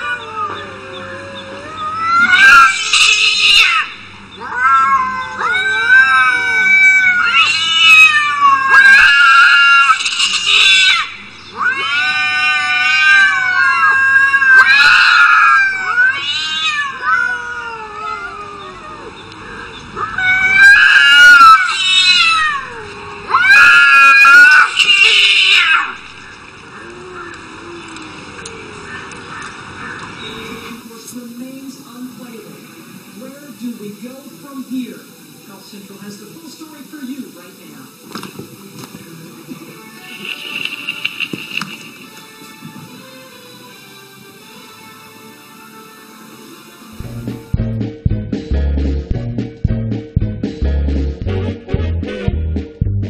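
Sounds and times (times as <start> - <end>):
cats yowling: 0.0 - 30.8.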